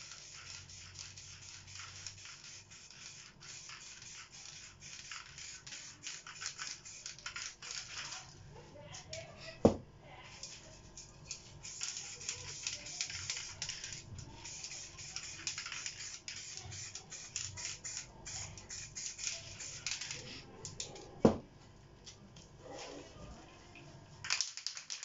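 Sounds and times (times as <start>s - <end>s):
spray paint can hissing: 0.0s - 8.3s, 11.3s - 20.4s.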